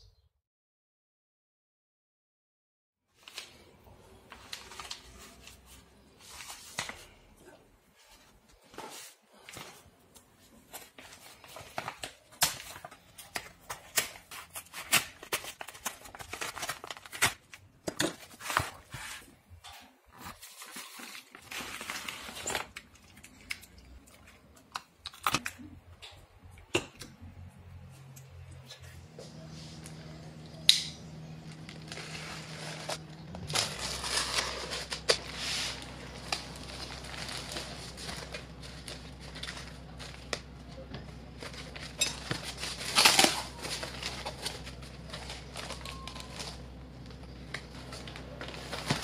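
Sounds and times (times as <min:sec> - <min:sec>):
plastic mailer crinkling: 0:03.2 - 0:07.2, 0:10.6 - 0:19.3, 0:20.1 - 0:25.6, 0:31.0 - 0:49.0.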